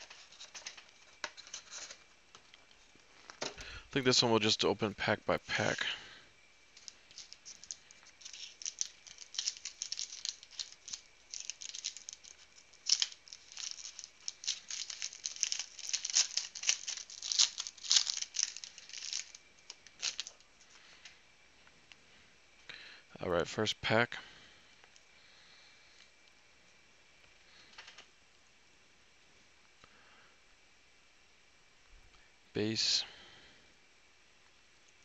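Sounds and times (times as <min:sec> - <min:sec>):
foil wrapper tearing and crinkling: 0:06.8 - 0:20.4.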